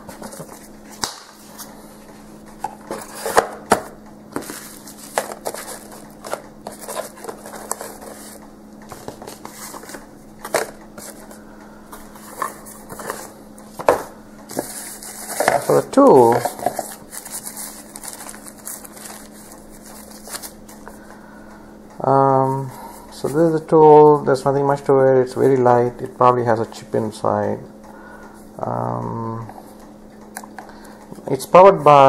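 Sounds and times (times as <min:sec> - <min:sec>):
paper and plastic wrap rustling: 0:00.0 - 0:01.8, 0:02.6 - 0:03.8, 0:04.4 - 0:11.4, 0:12.0 - 0:21.0
faint steady hum: 0:00.0 - 0:32.0.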